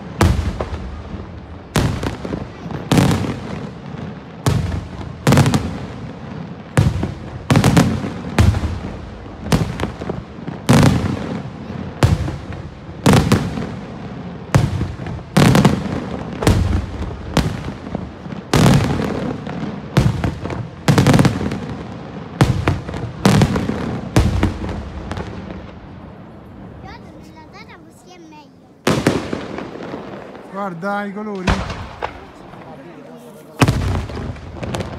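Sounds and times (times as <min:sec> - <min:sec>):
firework shells bursting: 0:31.3 - 0:32.8.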